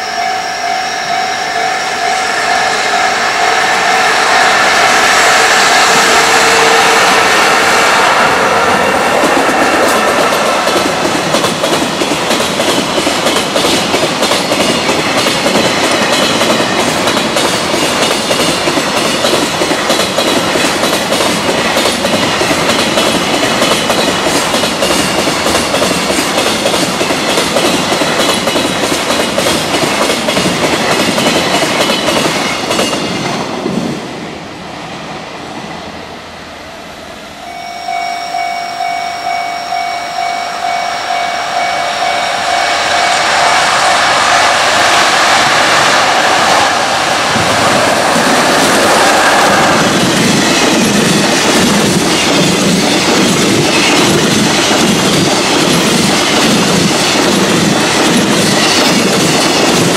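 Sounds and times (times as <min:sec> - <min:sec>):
level-crossing warning alarm: 0:00.0 - 0:12.2, 0:37.3 - 0:45.6
train wheels clattering over rail joints: 0:09.1 - 0:33.2, 0:47.2 - 0:59.9.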